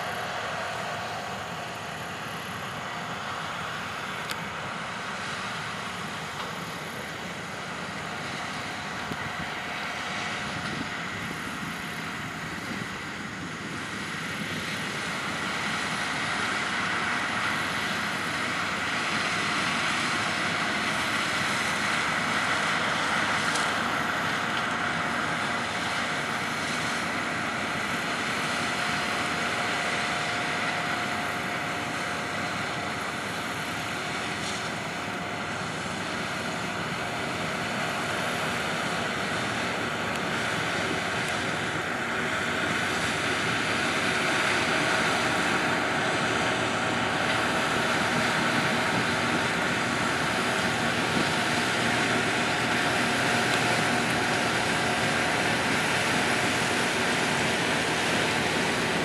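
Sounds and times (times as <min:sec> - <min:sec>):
drone of engines and machinery: 0:00.0 - 0:59.0
faint steady whine: 0:00.0 - 0:59.0.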